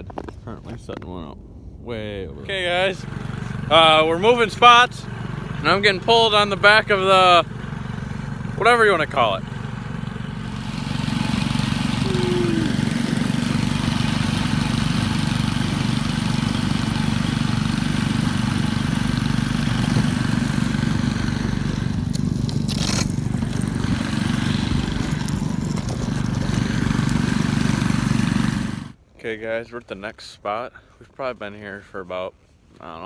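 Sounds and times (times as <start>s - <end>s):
outboard motor running: 3.0s - 29.0s.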